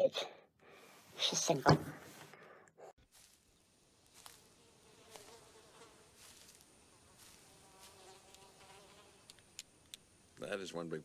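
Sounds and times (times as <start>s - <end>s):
quiet outdoor background: 0.0s - 11.0s
flies buzzing: 3.7s - 10.4s.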